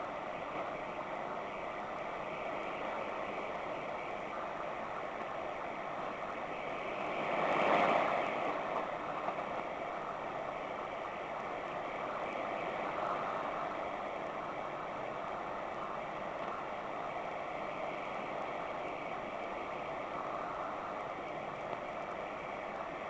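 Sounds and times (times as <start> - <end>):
shortwave radio static rushing: 0.0 - 23.0.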